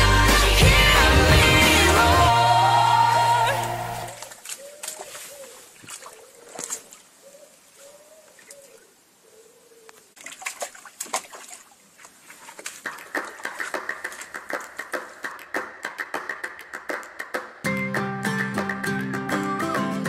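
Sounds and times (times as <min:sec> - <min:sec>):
dog splashing in water: 0:04.1 - 0:07.1, 0:10.2 - 0:15.3.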